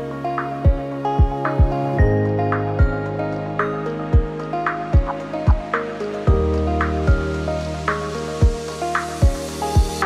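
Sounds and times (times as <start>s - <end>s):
synth chords: 0.0s - 10.0s
deep kick-drum beat: 0.7s - 2.1s, 5.0s - 5.7s, 6.3s - 6.5s, 9.2s - 10.0s.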